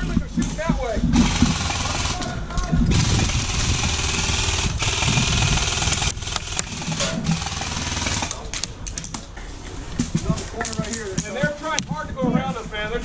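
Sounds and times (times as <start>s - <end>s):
airsoft gun full-auto burst: 1.2s - 8.4s.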